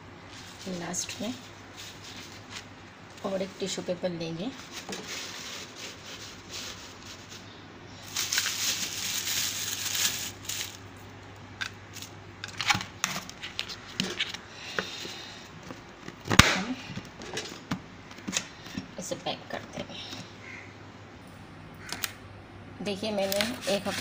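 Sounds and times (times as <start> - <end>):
tissue paper rustling: 0.3 - 3.8, 4.4 - 10.8.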